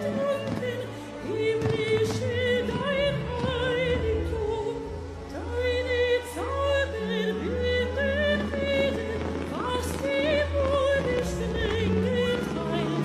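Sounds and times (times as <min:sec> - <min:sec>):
backing music: 0:00.0 - 0:13.0
woman singing operatically: 0:00.0 - 0:13.0.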